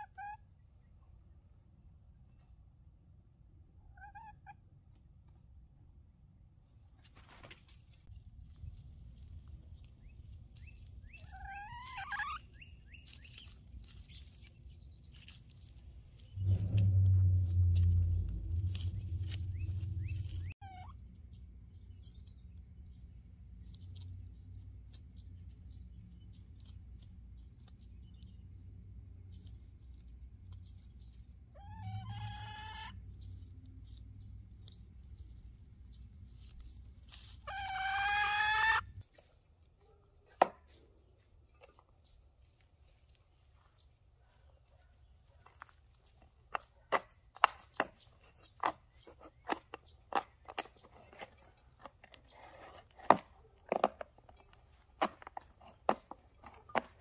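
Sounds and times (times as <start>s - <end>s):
loud low hum: 16.3s - 20.5s
drawn-out animal cries: 31.6s - 33.1s, 37.4s - 39.0s.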